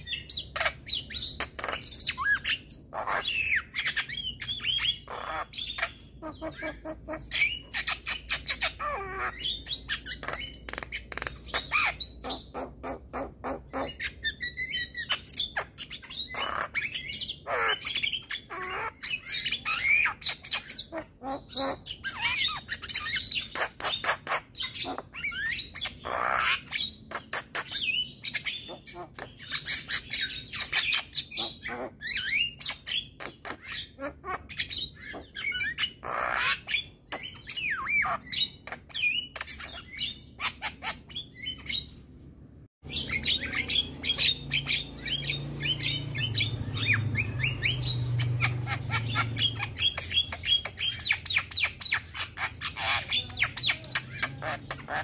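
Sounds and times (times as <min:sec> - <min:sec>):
bird singing chirps and whistles: 0:00.0 - 0:12.6, 0:42.8 - 0:55.0.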